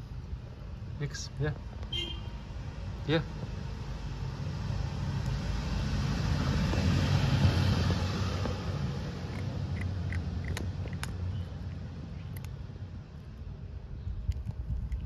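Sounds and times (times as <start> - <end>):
vehicle passing: 2.4 - 12.1
cat crunching dry kibble: 9.1 - 11.3, 14.1 - 15.0.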